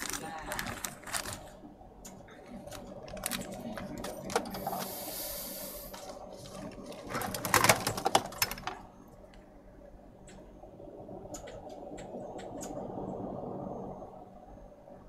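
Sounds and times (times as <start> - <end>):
short hiss: 4.8 - 6.1.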